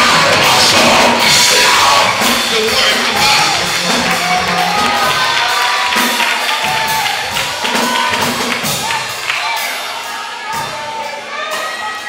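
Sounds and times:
congregation singing: 0.0 - 10.6
live praise music with drums: 0.0 - 12.0.

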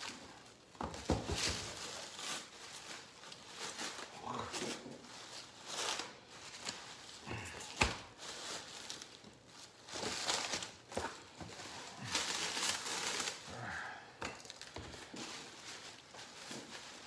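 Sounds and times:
bubble wrap crinkling: 0.0 - 17.0.

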